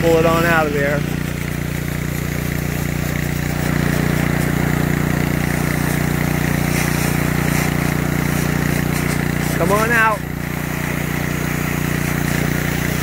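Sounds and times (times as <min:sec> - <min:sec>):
pressure washer engine running: 0:00.0 - 0:13.0
water spraying from drain: 0:00.0 - 0:13.0.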